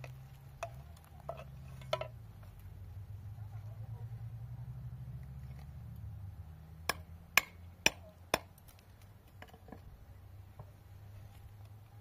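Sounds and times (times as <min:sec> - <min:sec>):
hatchet striking on rock: 0:06.9 - 0:08.5.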